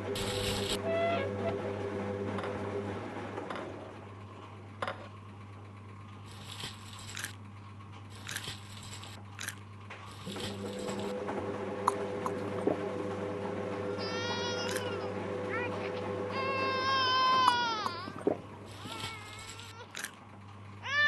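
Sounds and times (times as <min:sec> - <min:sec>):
steady low hum: 0:00.0 - 0:21.0
man crunching food: 0:06.3 - 0:07.4, 0:08.1 - 0:10.4.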